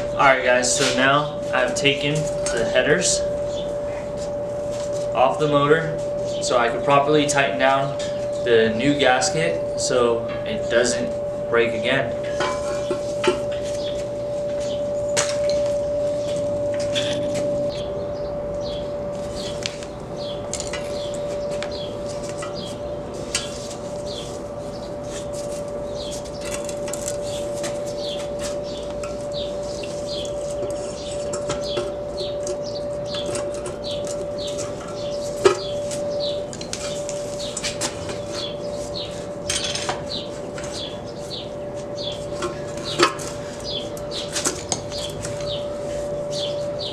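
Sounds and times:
steady hum: 0.0 - 46.9
small birds chirping: 3.4 - 4.4, 17.0 - 46.9
hand tools clinking on metal: 10.1 - 14.0, 14.6 - 17.4, 20.5 - 22.7, 25.4 - 38.5, 39.4 - 40.9, 42.0 - 45.6.

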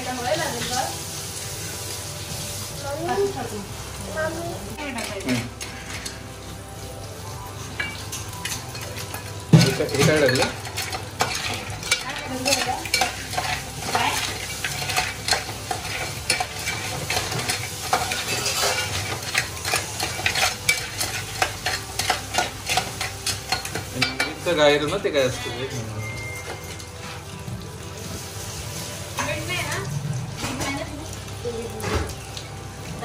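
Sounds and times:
food sizzling in a pan: 0.0 - 33.0
spoon scraping a pan: 4.9 - 6.2, 7.8 - 25.0.

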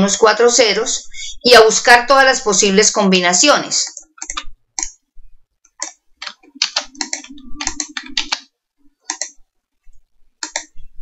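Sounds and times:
computer keyboard typing: 4.0 - 5.0, 5.7 - 9.4, 10.4 - 10.8
faint low hum: 4.4 - 11.0.

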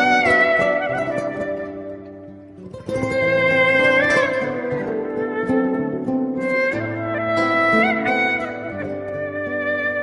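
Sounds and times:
melody in long held notes: 0.0 - 10.0
plucked string accompaniment: 0.0 - 10.0.

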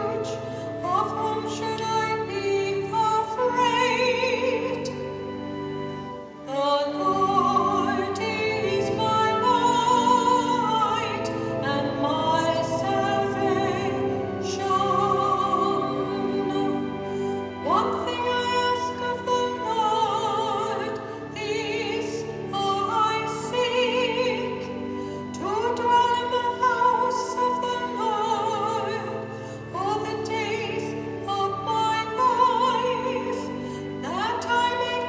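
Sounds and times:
person singing with vibrato: 0.0 - 35.0.

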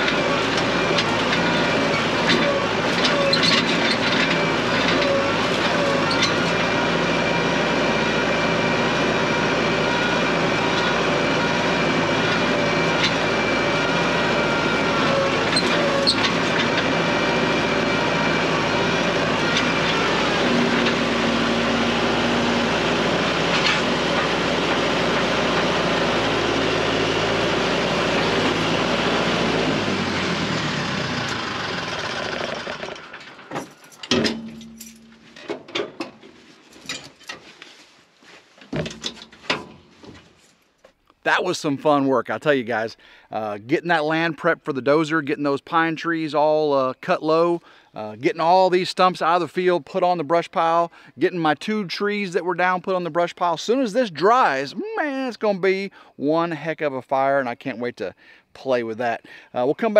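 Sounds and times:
tractor engine running: 0.0 - 37.7, 38.7 - 59.9
loader clanks and rattles: 0.0 - 37.8, 38.4 - 41.7.

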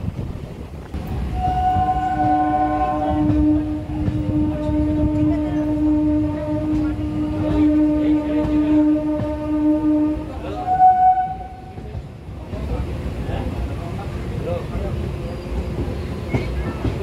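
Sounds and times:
train rumbling: 0.0 - 17.0
train horn: 1.2 - 12.0.

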